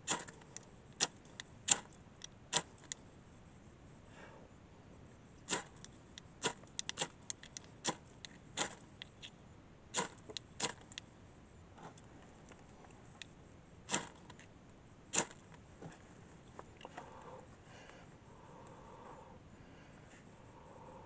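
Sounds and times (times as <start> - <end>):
scraper rasping on fire-starter rod: 0.0 - 0.4, 5.5 - 8.0, 8.6 - 8.9, 9.9 - 11.0, 13.9 - 14.4, 15.1 - 15.4.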